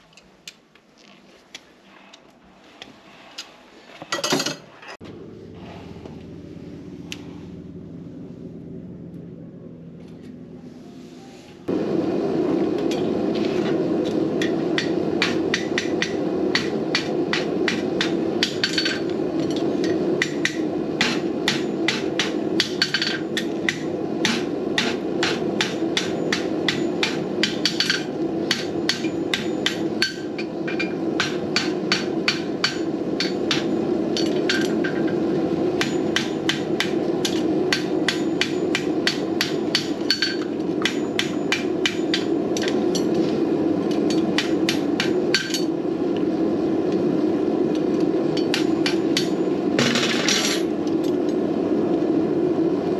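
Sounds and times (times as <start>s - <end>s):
low hum: 5.0s - 52.9s
hammer striking horseshoe on anvil: 14.4s - 35.1s, 35.8s - 43.2s, 44.0s - 45.7s, 48.4s - 50.7s.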